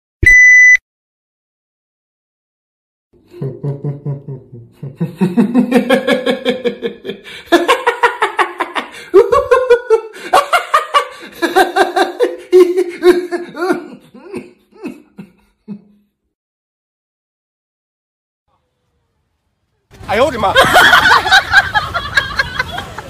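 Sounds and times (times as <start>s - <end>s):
people laughing: 3.2s - 16.0s, 20.2s - 23.0s.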